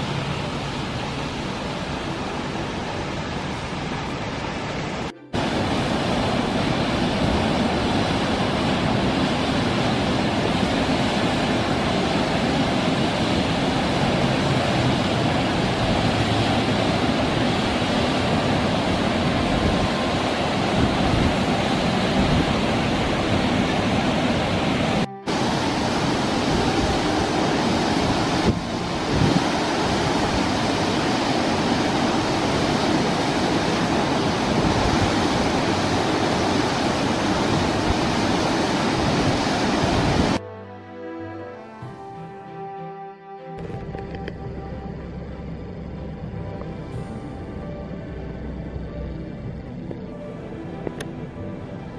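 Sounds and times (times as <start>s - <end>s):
heavy rush of water: 0.0s - 40.5s.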